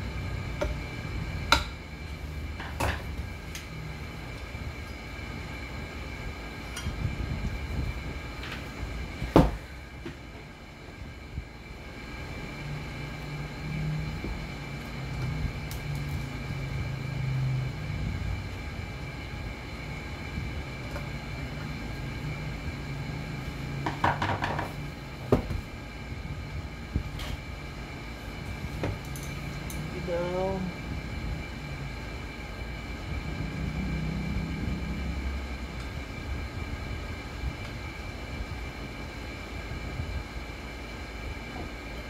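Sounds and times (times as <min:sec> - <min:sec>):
steady low rumble: 0:00.0 - 0:24.0, 0:24.8 - 0:42.0
faint high whine: 0:24.8 - 0:42.0.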